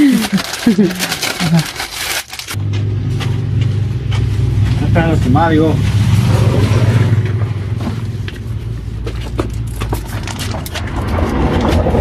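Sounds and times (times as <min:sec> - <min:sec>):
plastic wrapping crinkling: 0:00.0 - 0:02.6.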